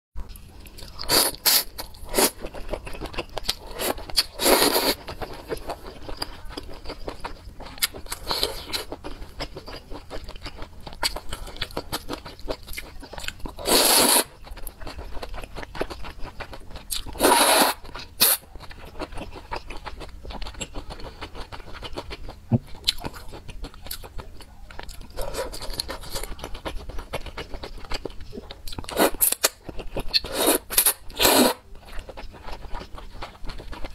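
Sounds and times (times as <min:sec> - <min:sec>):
chewing: 0:00.2 - 0:33.9
person slurping noodles: 0:03.8 - 0:05.0, 0:13.6 - 0:14.3, 0:17.2 - 0:18.4, 0:30.2 - 0:31.6.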